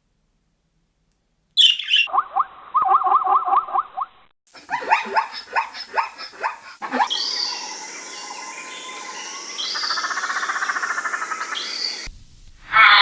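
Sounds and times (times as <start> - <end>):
bird chirps: 1.6 - 3.8, 6.9 - 12.1
rapid trilling bird call: 1.6 - 3.8, 4.8 - 12.1.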